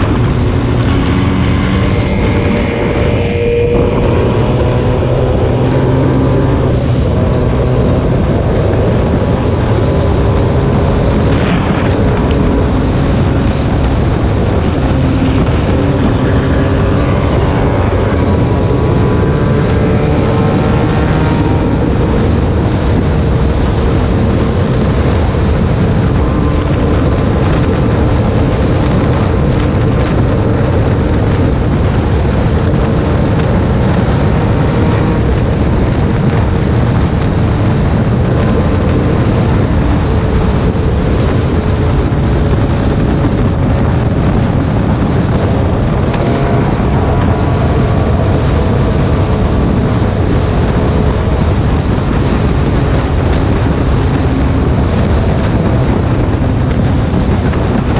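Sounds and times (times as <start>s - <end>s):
road and wind noise: 0.0s - 57.9s
vehicle engine running: 0.0s - 57.9s.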